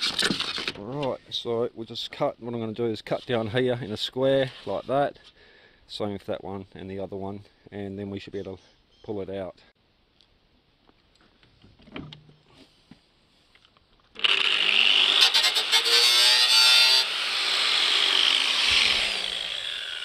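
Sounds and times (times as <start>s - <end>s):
angle grinder motor whine: 14.2s - 20.0s
grinder disc cutting metal: 14.2s - 20.0s.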